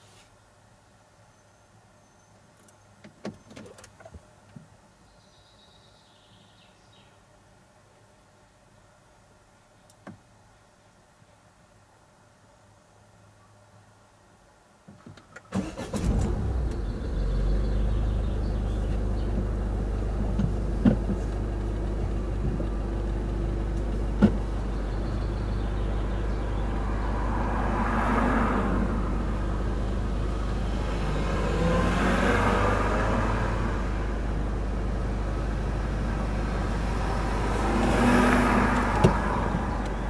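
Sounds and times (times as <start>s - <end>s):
car pulling up: 15.5s - 40.0s
car engines idling: 15.6s - 40.0s.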